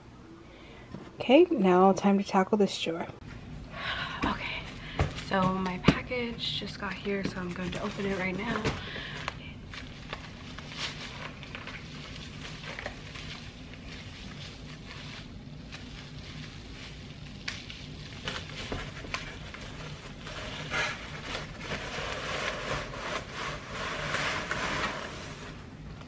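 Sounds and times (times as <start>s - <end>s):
low steady hum: 0.0s - 26.0s
packaging rustling and crinkling: 6.8s - 25.6s.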